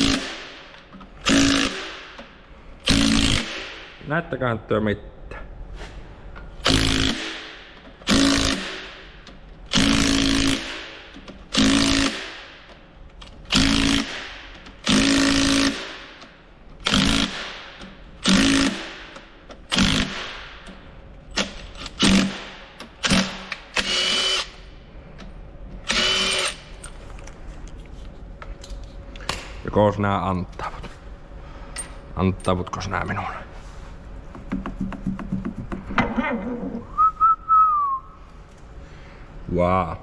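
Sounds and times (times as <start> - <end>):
cordless ratchet bursts: 9.7 - 10.8, 13.5 - 16.0, 16.8 - 18.9, 25.8 - 26.6.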